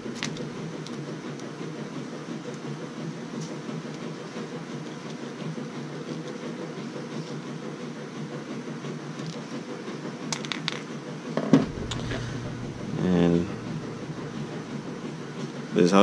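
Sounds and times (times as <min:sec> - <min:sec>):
low background hum: 0:00.0 - 0:01.5, 0:11.6 - 0:16.0.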